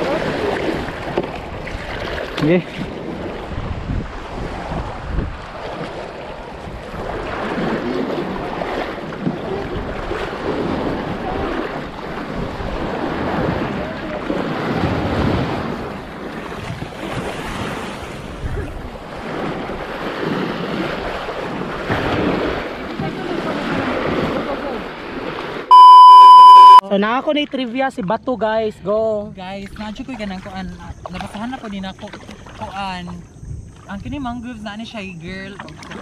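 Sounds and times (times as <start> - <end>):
wind buffeting microphone: 0.0 - 25.4
small waves breaking on sand: 0.0 - 26.8.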